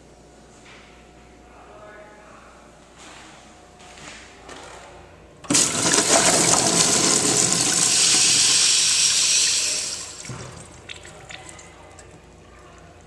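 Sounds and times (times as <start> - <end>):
urinal flushing: 5.4 - 13.0.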